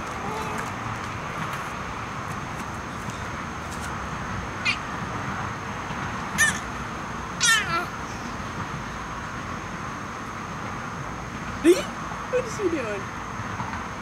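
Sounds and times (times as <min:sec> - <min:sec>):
baby squealing laughs: 0:06.4 - 0:06.7, 0:07.4 - 0:07.9.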